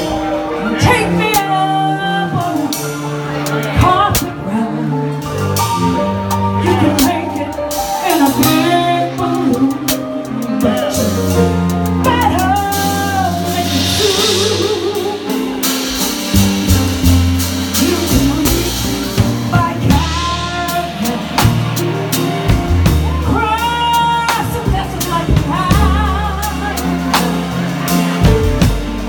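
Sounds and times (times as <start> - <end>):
drums: 0.0 - 29.0
person singing: 0.0 - 29.0.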